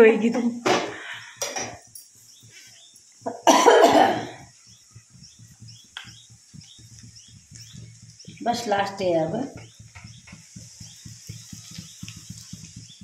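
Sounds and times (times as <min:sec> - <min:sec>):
person coughing: 0:03.3 - 0:04.4
faint low knocks: 0:04.4 - 0:13.0.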